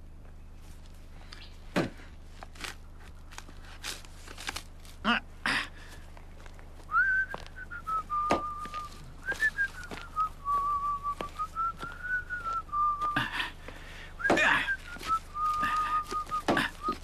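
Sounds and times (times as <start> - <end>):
man whistling a tune: 6.9 - 13.2, 14.2 - 17.0
scraping thuds: 6.9 - 17.0.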